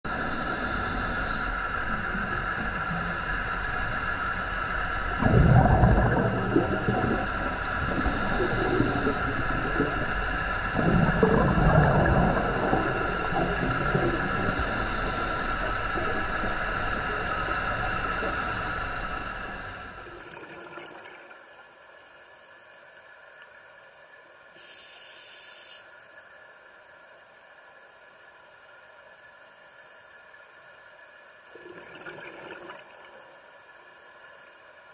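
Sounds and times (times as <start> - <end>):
steady hiss: 0.0 - 20.5, 21.3 - 34.9
regulator inhale hiss: 0.1 - 20.2, 24.6 - 26.0
exhaled bubbles rumbling: 0.1 - 21.4, 31.5 - 33.3.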